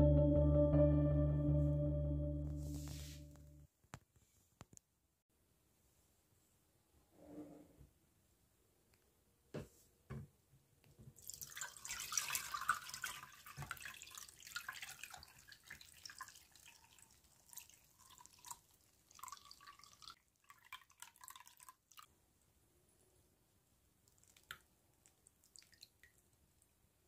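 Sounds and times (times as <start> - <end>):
liquid pouring and dripping: 11.2 - 22.1, 24.0 - 26.7.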